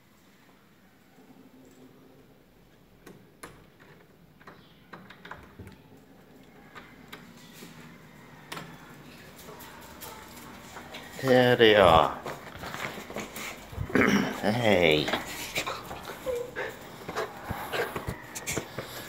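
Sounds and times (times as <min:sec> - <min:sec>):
footsteps on tiled floor: 0:06.8 - 0:19.0.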